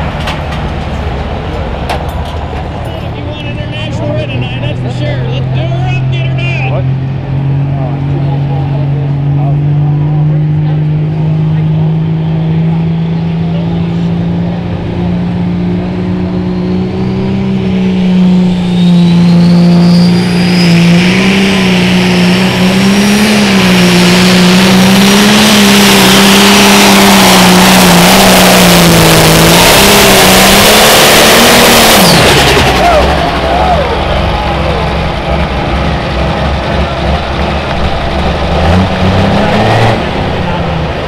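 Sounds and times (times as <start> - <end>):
tractor diesel engine revving: 0.0 - 41.0
turbo whistle climbing in pitch: 18.3 - 22.0.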